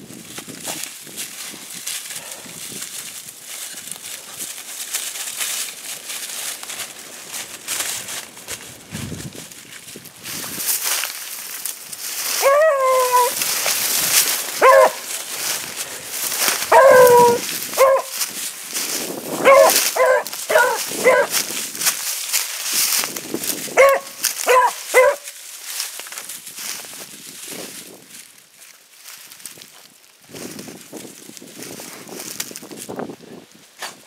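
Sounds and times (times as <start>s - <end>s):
dry leaves and brush rustling: 0.0s - 34.0s
dog barking and bawling: 12.4s - 13.4s, 14.6s - 15.1s, 16.6s - 18.1s, 19.4s - 21.3s, 23.8s - 25.3s.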